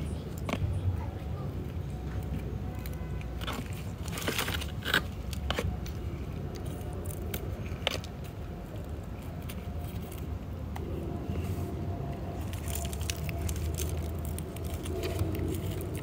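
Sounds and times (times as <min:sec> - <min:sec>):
low background rumble: 0:00.0 - 0:16.0
dry leaves crackling: 0:02.3 - 0:10.4, 0:11.3 - 0:16.0.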